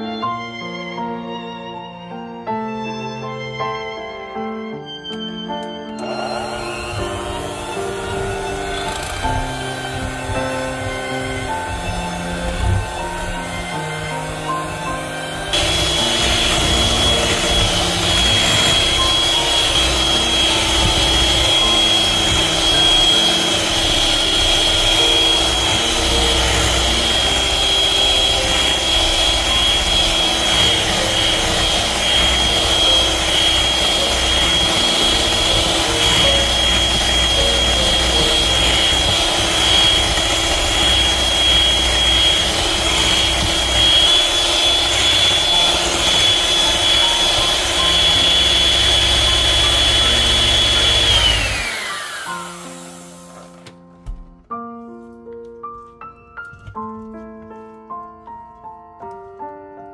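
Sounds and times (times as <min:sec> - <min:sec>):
beaters churning cream: 0:06.0 - 0:53.7
electric hand mixer running: 0:06.0 - 0:53.7.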